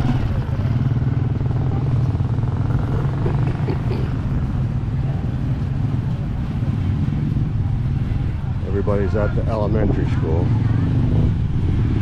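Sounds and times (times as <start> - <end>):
motorcycle engine droning: 0.0 - 12.0.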